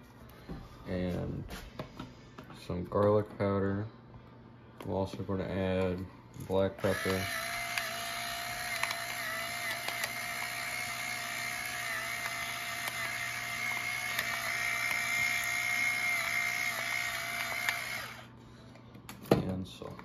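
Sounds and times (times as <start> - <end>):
electric pepper mill grinding: 6.8 - 18.3.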